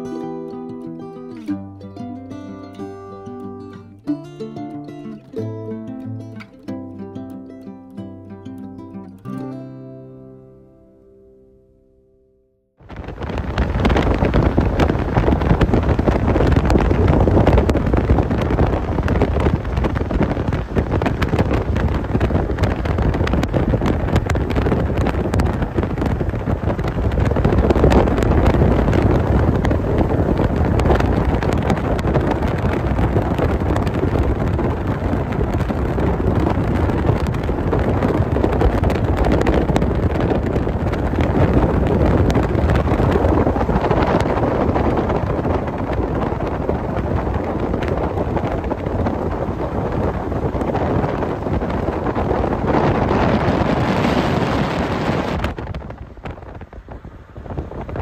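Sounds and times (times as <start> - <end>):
tyre and road noise: 12.8 - 58.0
wind buffeting microphone: 12.8 - 58.0.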